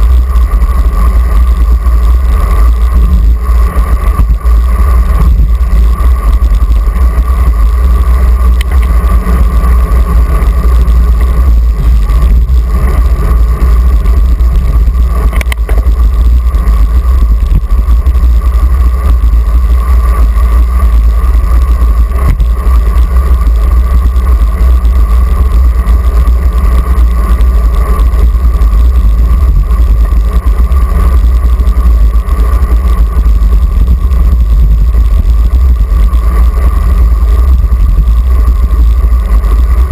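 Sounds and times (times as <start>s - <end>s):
steady mid-pitched tone: 0.0s - 39.9s
wind buffeting microphone: 0.0s - 39.9s.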